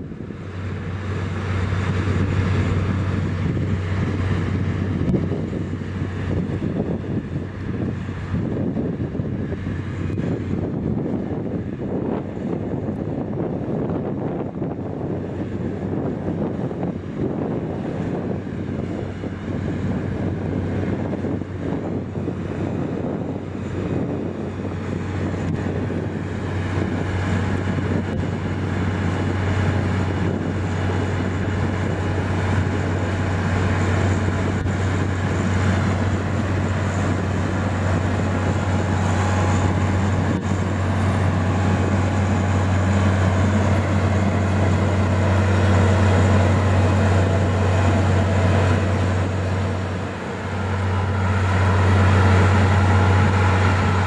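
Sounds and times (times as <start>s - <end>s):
diesel engine droning under load: 0.0s - 54.0s.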